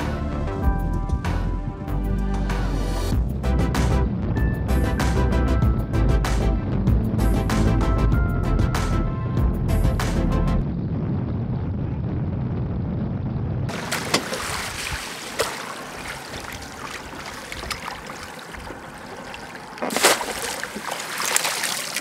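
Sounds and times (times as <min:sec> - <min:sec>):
outboard motor rumble: 0:13.6 - 0:21.2
net splashing out of water: 0:13.7 - 0:22.0
water lapping and sloshing: 0:13.7 - 0:22.0.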